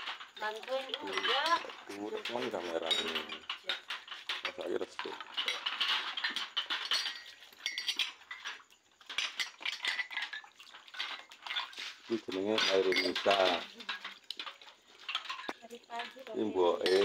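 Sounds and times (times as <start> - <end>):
glass dishes clinking: 0.9 - 17.0.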